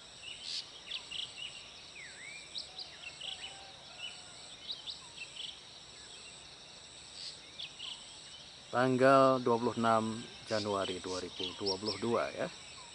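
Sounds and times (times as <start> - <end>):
high insect trill: 0.0 - 12.9
birds chirping and whistling: 9.7 - 12.9.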